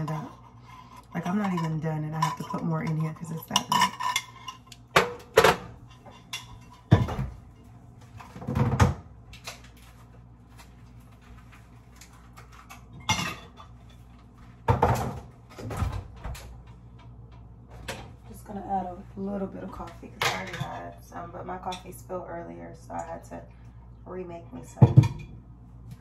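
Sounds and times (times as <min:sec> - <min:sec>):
fridge door opening and shutting: 0:08.1 - 0:09.7, 0:14.7 - 0:16.6.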